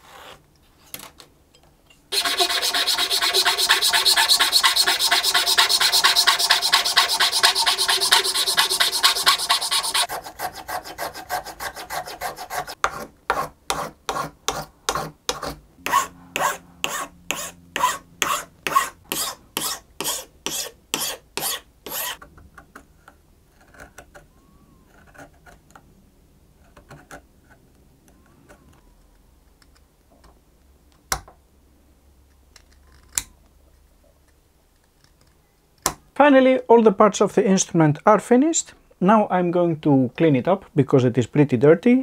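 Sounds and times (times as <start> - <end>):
hand file rasping on wood: 2.1 - 22.2.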